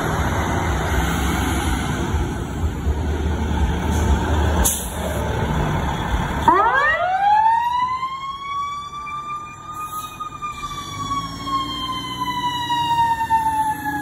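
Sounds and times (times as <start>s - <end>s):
diesel engine rumbling: 0.0s - 14.0s
fire engine siren: 5.2s - 14.0s.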